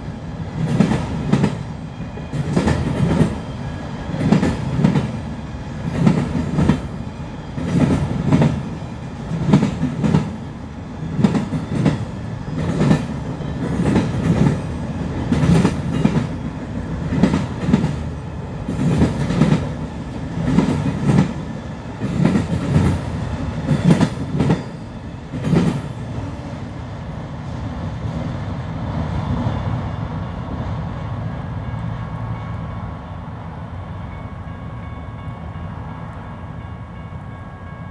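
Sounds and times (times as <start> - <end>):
steady train rumble: 0.0 - 37.9
train wheels clicking over rail joints: 0.6 - 3.4, 4.1 - 5.2, 5.8 - 6.9, 7.5 - 8.7, 11.1 - 21.4, 22.0 - 26.0.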